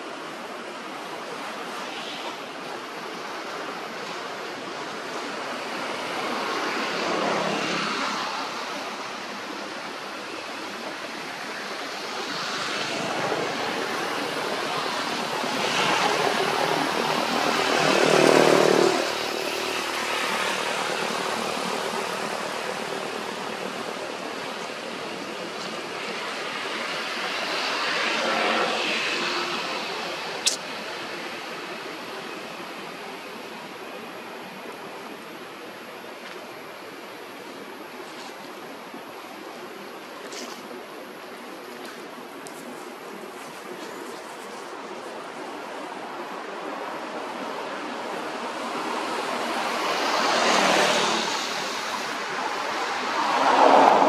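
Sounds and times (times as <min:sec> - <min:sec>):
rushing background noise: 0:00.0 - 0:54.0
engines passing by: 0:00.6 - 0:36.0, 0:43.0 - 0:54.0
sharp click: 0:30.4 - 0:30.6.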